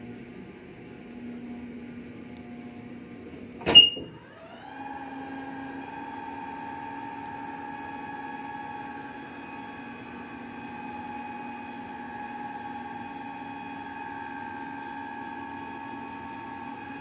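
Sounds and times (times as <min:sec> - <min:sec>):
hydraulic pump motor whine: 0:03.7 - 0:17.0.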